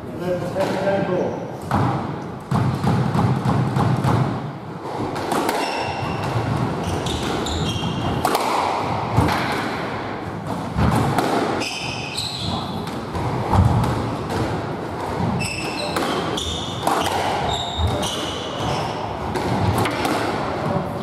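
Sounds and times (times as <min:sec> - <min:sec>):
squash ball hits: 0:01.6 - 0:20.8
shoes squeaking on wooden floor: 0:05.6 - 0:08.2, 0:15.2 - 0:19.0.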